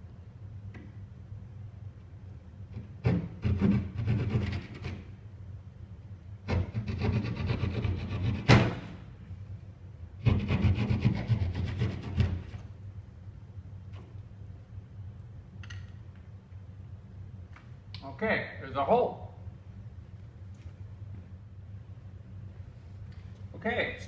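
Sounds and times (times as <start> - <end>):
handsaw cutting drywall: 2.8 - 5.0, 6.5 - 8.8, 10.2 - 12.6.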